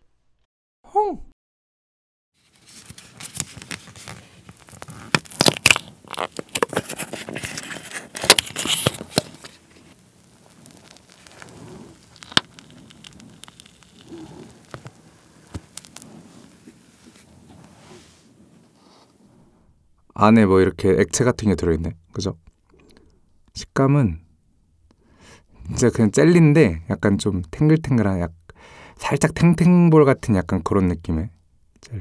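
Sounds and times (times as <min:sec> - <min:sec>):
plastic wrapper crinkling: 0:02.4 - 0:17.3.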